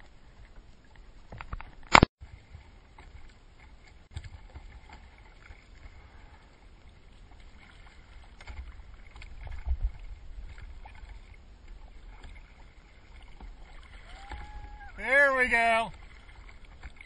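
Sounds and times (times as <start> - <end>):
water splashing against kayak: 0.0 - 17.0
wind rumble on microphone: 8.0 - 15.0.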